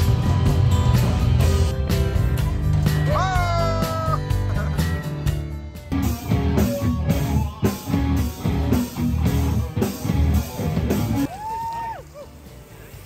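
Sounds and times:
drum kit beat: 0:00.0 - 0:11.4
rock band playing live: 0:00.0 - 0:13.0.

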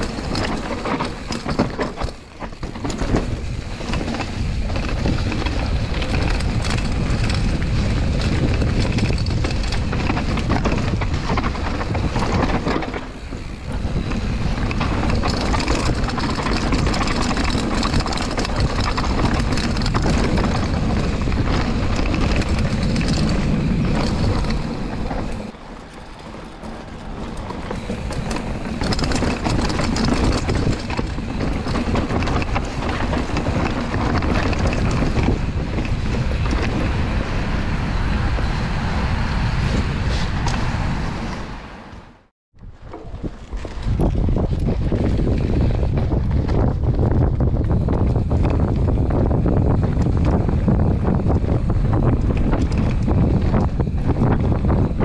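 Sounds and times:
bike tyre rumble: 0:00.0 - 0:55.0
wind rushing over microphone: 0:00.0 - 0:55.0.

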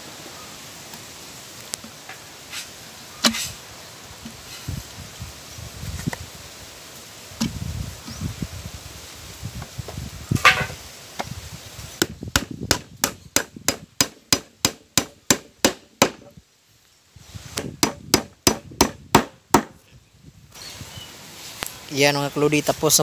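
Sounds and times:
hammer driving nails into plywood: 0:12.0 - 0:16.3, 0:17.6 - 0:19.8.

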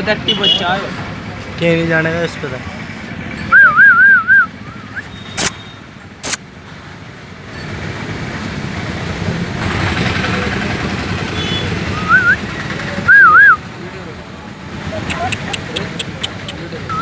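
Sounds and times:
traffic-like rumbling noise: 0:00.0 - 0:17.0
sharp clicks: 0:05.4 - 0:05.6, 0:06.2 - 0:06.4, 0:15.0 - 0:16.6.

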